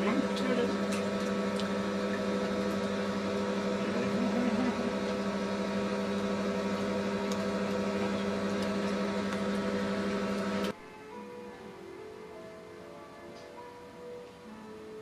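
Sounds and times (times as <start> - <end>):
pool pump motor humming: 0.0 - 10.8.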